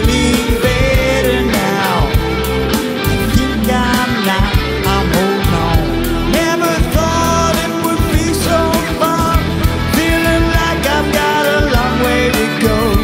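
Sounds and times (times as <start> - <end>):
rock song playing: 0.0 - 13.0.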